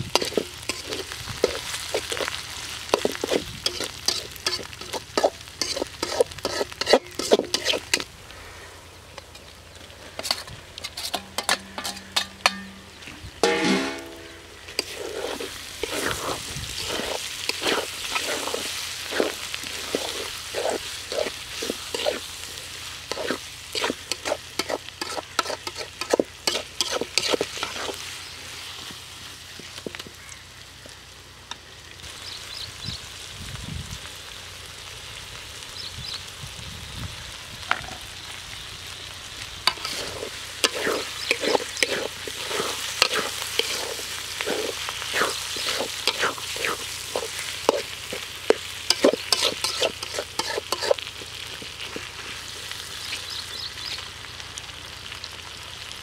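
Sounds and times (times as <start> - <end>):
vegetables sizzling in a pan: 0.0 - 56.0
metal spatula scraping pan: 0.1 - 2.3, 2.9 - 8.0, 10.1 - 22.2, 23.1 - 28.0, 39.7 - 51.1.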